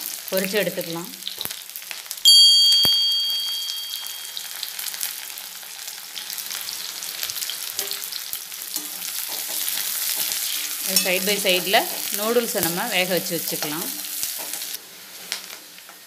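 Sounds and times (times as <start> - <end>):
onions sizzling in hot oil: 0.0 - 16.0
bell chime: 2.3 - 4.7.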